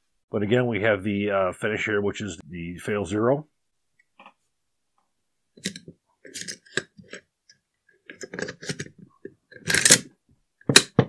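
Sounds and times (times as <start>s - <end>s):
metal clicks and scrapes: 5.6s - 7.3s, 8.0s - 10.1s.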